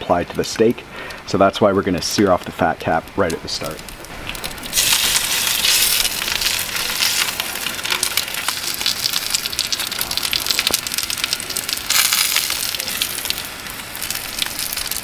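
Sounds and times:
fat sizzling in a skillet: 3.6s - 15.0s.

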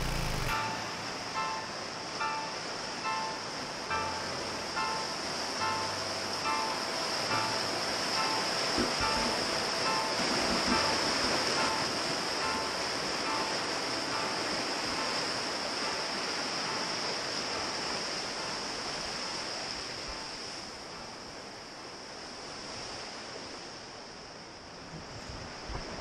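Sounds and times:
low bump: 0.0s - 0.6s
river rapids rushing over rocks: 0.0s - 21.8s.

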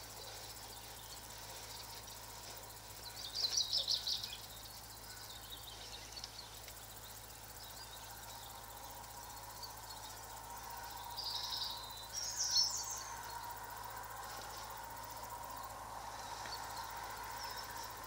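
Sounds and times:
background hiss: 0.0s - 18.0s
small bird chirping: 3.0s - 10.2s.

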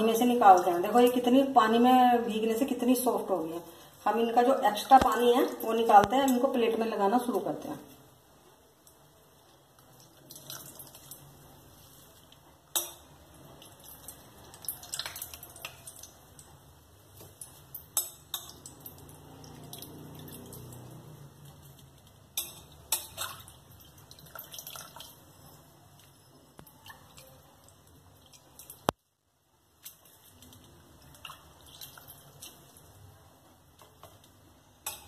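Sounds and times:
water splashing and dripping: 9.8s - 11.4s, 13.5s - 16.5s, 17.3s - 22.2s, 23.0s - 29.0s, 29.7s - 32.9s.

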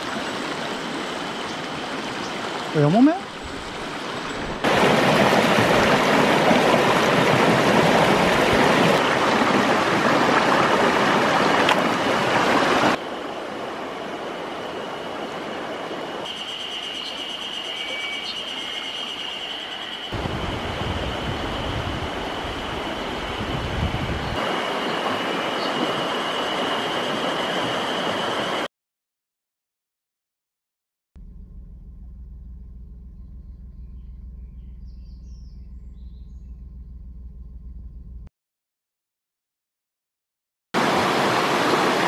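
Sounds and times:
stream water rushing over rocks: 0.0s - 16.3s, 24.3s - 28.7s, 40.8s - 42.0s
vehicle rumbling on dirt track: 31.2s - 38.3s
short bird chirps: 33.2s - 36.7s.

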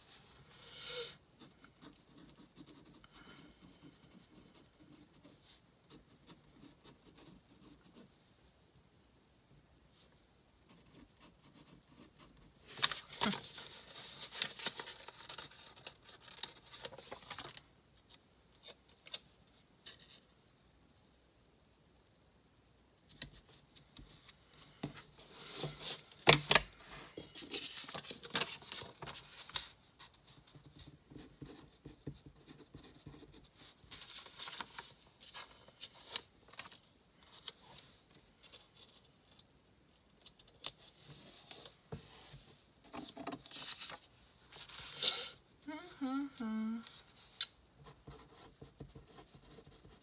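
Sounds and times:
paper rustling and sliding: 12.6s - 17.6s, 25.2s - 29.8s, 33.6s - 39.0s, 40.8s - 45.3s.

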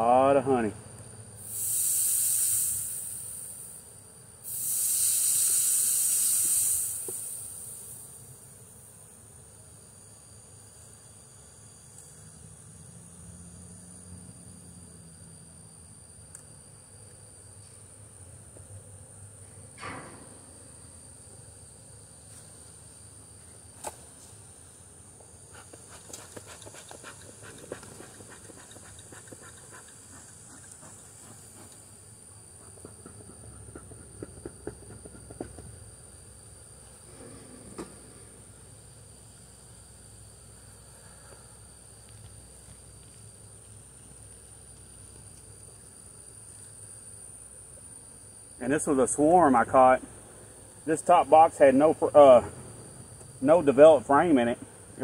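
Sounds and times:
high-pitched hiss: 0.0s - 33.6s, 35.1s - 55.0s.

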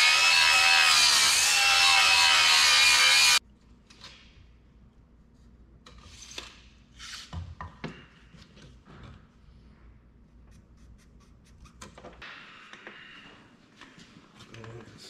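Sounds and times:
angle grinder grinding steel: 0.0s - 3.4s.

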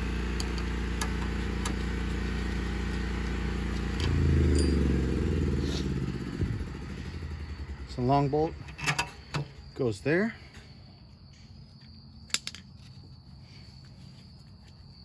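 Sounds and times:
engine humming: 0.0s - 11.8s.

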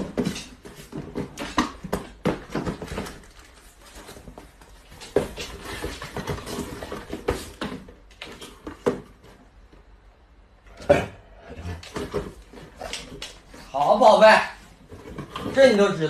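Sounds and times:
cardboard boxes knocking and scraping: 0.0s - 9.6s, 11.8s - 13.1s, 14.7s - 15.8s.

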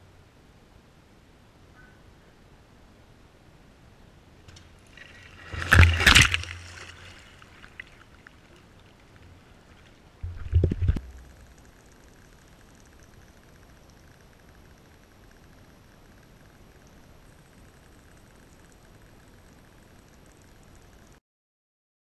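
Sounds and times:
water sloshing: 4.8s - 11.6s.

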